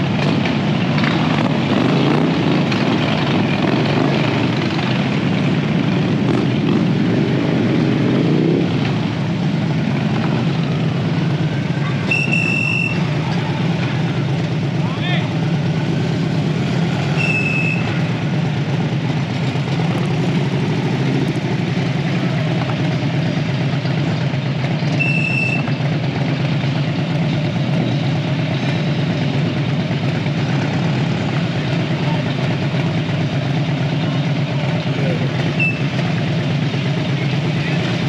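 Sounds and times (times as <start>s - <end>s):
motorcycle engines at low speed: 0.0s - 38.0s
short high beeps: 12.1s - 13.1s, 17.1s - 18.0s, 25.0s - 25.7s, 35.6s - 35.9s.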